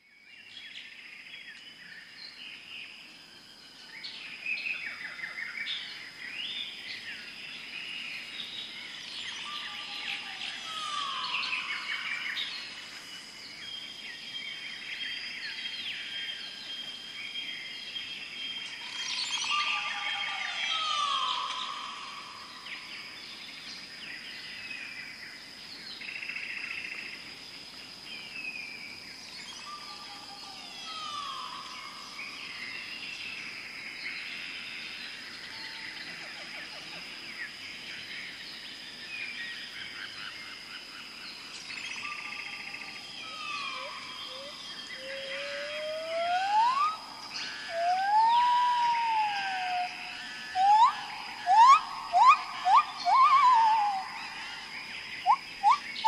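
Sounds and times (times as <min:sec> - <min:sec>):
high insect drone: 0:00.0 - 0:56.0
birds chirping and trilling: 0:03.6 - 0:27.1, 0:28.1 - 0:56.0
falling bird call: 0:43.6 - 0:49.9, 0:50.6 - 0:54.1.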